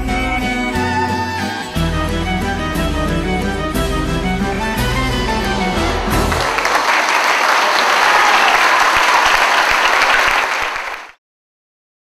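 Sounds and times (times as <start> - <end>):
crowd applauding: 5.0 - 11.2.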